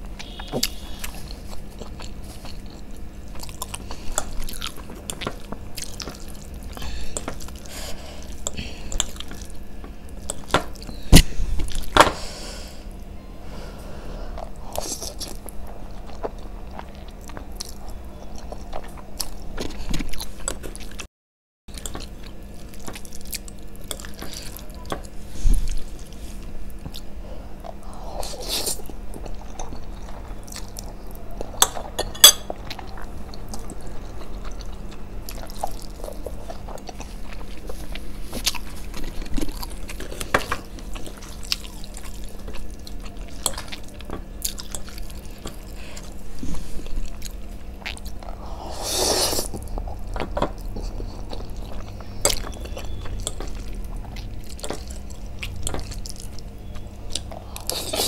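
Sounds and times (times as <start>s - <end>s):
noodles slurped and chewed: 32.7s - 58.0s.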